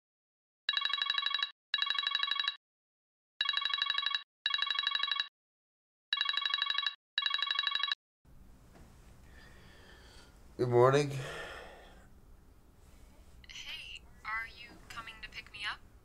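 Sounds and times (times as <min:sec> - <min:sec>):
phone ringing with bell ringtone: 0:00.7 - 0:02.6, 0:03.4 - 0:05.3, 0:06.1 - 0:08.0.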